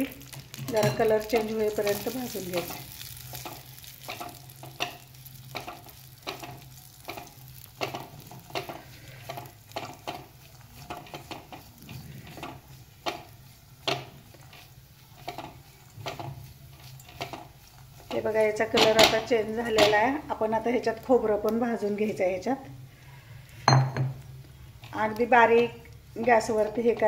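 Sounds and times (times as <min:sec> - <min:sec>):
spatula scraping nuts in metal pan: 0:00.7 - 0:20.0.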